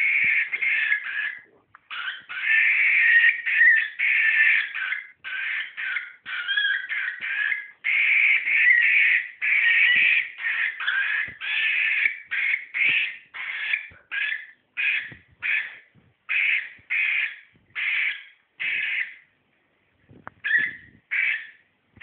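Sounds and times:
cockatiel scratchy calls: 0.0 - 19.2, 20.4 - 21.6.

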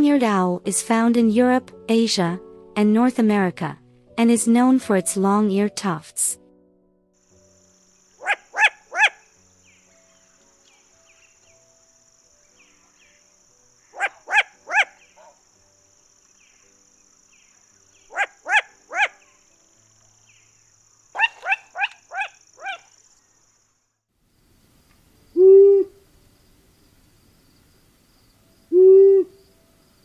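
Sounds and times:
owl low hoot: 8.2 - 9.3, 13.9 - 15.3, 18.1 - 19.4, 21.2 - 22.9, 25.3 - 26.0, 28.7 - 29.4
owl bark-like calls: 8.2 - 9.4, 13.8 - 15.4, 18.0 - 19.4, 21.1 - 23.0, 25.4 - 26.0, 28.7 - 29.4.

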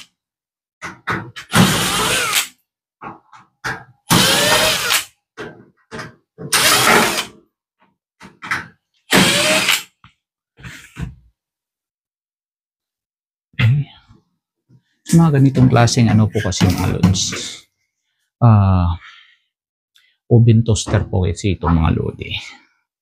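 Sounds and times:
cordless drill spinning: 1.5 - 2.5, 4.1 - 5.0, 6.5 - 7.3, 9.1 - 9.8.

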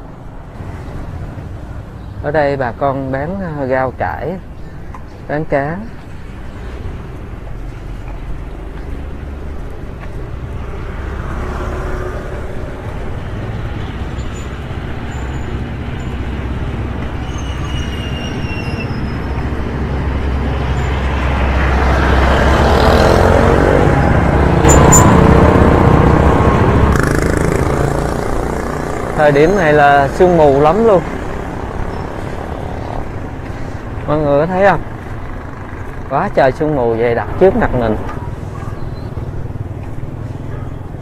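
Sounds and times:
road traffic rumble: 0.0 - 41.0
vehicle passing close by: 6.6 - 17.6, 19.1 - 34.0.

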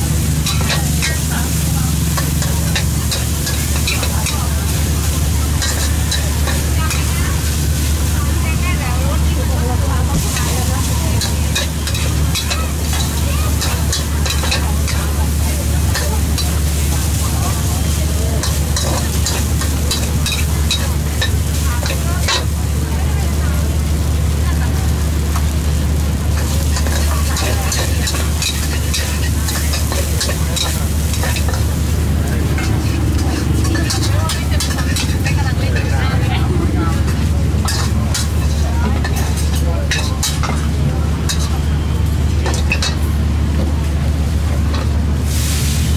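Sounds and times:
fried rice sizzling: 0.0 - 45.9
metal spatula scraping wok: 0.2 - 8.2, 10.2 - 22.5, 26.3 - 41.6.

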